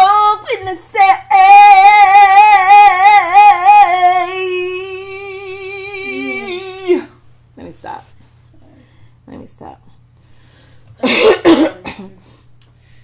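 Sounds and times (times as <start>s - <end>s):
woman singing a long note: 0.0s - 7.2s.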